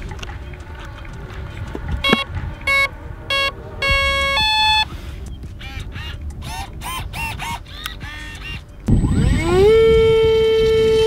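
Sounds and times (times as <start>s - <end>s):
electronic startup beeps: 2.0s - 6.0s, 8.0s - 10.1s.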